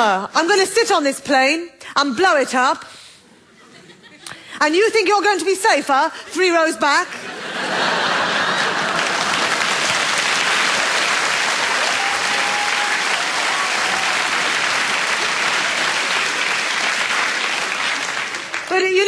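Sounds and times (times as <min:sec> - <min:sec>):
audience applauding: 0:08.0 - 0:19.0.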